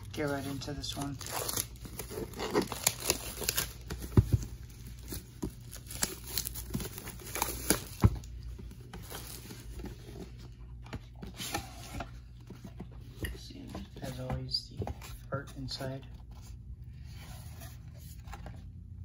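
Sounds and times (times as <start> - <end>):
shrink wrap crinkling and tearing: 0.0 - 9.9.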